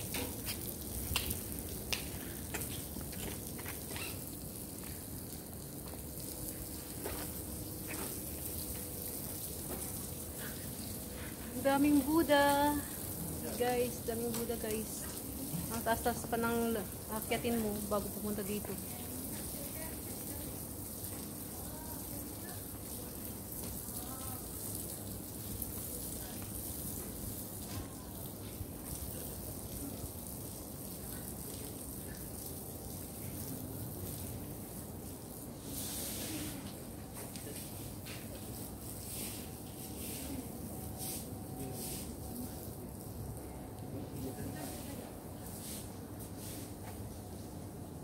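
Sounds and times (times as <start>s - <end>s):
footsteps on paved path: 0.0s - 10.2s, 13.9s - 16.2s
crackly hiss: 0.0s - 42.6s.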